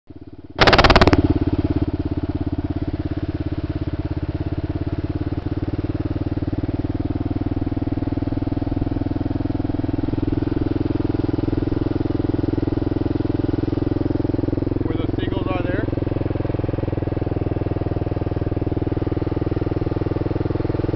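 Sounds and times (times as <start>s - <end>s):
motorcycle engine running: 0.1s - 20.9s
loud burst of noise: 0.6s - 1.4s.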